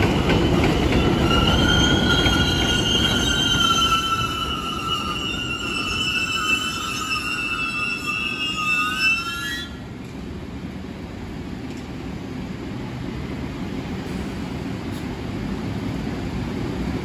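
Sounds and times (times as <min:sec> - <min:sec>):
train wheels squealing: 0:00.0 - 0:09.8
train rumbling on track: 0:00.0 - 0:17.0.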